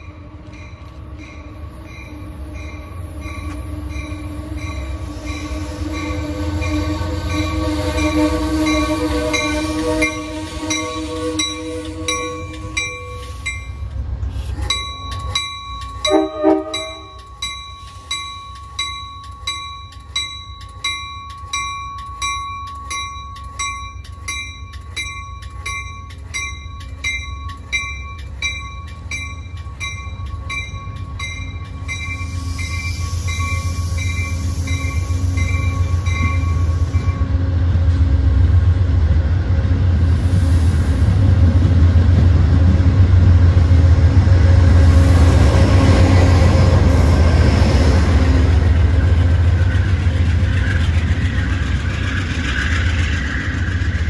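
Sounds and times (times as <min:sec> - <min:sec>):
train bell ringing: 0:00.0 - 0:37.4
diesel train rumble: 0:00.0 - 0:54.0
train horn blast: 0:03.6 - 0:13.4, 0:16.1 - 0:17.2.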